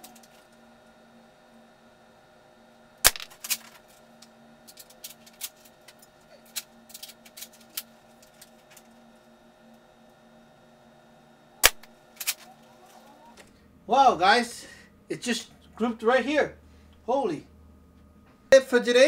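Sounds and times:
airsoft rifle shots: 0:11.6 - 0:11.9.

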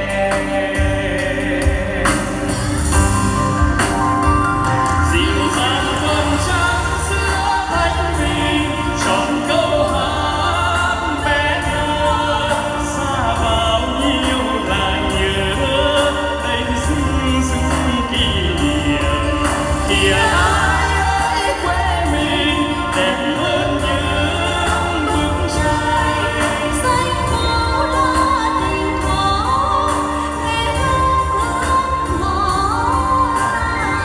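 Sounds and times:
person singing into microphone: 0:00.0 - 0:03.1, 0:05.0 - 0:34.0
amplified backing music: 0:00.0 - 0:34.0.

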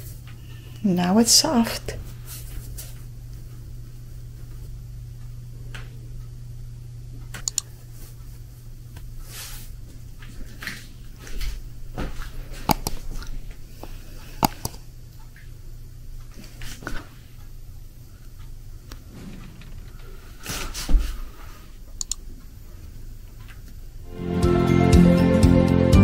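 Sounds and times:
sharp clicks: 0:07.3 - 0:07.7, 0:22.0 - 0:22.2
low hum: 0:11.0 - 0:24.4.

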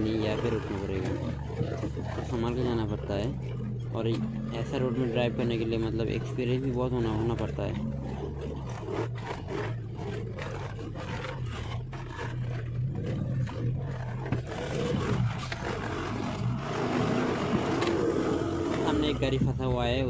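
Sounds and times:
truck diesel engine droning: 0:00.0 - 0:09.9, 0:14.3 - 0:20.0.

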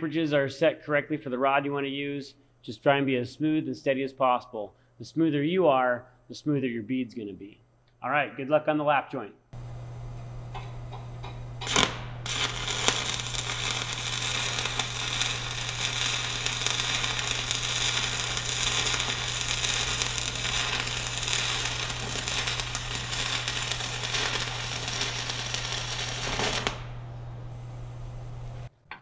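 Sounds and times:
welding arc crackling and sizzling: 0:09.6 - 0:27.2
welding arc sharp pops: 0:10.2 - 0:27.0.

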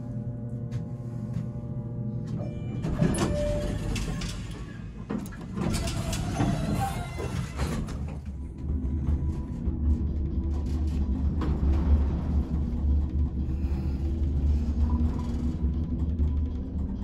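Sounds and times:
elevator doors sliding shut: 0:02.4 - 0:08.4.

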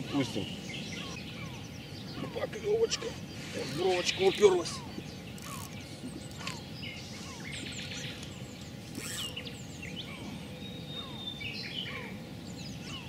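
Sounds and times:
birds chirping: 0:00.0 - 0:13.0
low outdoor background noise: 0:00.0 - 0:13.0
downward-sliding bird calls: 0:08.9 - 0:10.3.

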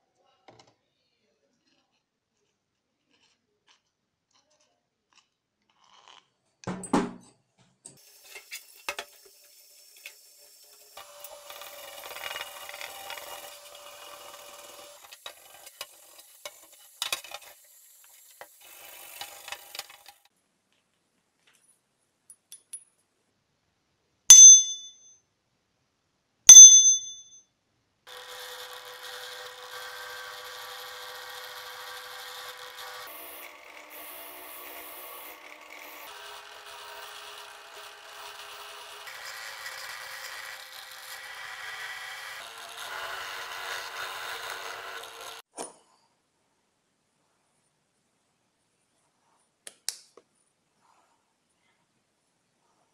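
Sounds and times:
drill press running: 0:10.6 - 0:15.7, 0:28.1 - 0:45.4
metal clinks and rubbing: 0:24.3 - 0:25.0
bell-like metallic rings: 0:24.3 - 0:25.1, 0:26.5 - 0:27.4.

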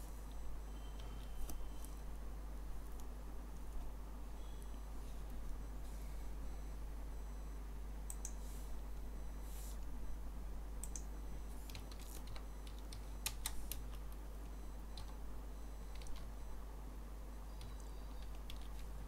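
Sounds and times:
steady low hum: 0:00.0 - 0:19.0
keyboard typing: 0:10.8 - 0:15.2, 0:15.8 - 0:16.4, 0:17.5 - 0:19.0.

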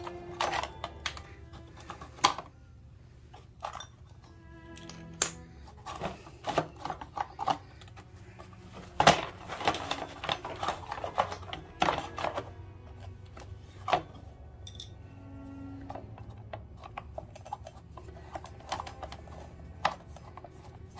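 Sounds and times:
hand tools and metal parts clinking: 0:00.0 - 0:20.9.

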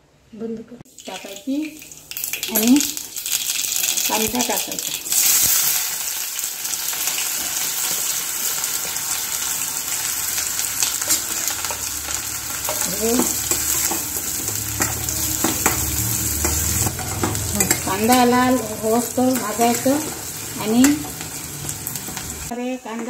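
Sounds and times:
onion sizzling in hot oil: 0:00.9 - 0:23.0
metal spoon scraping pan: 0:11.1 - 0:22.2.

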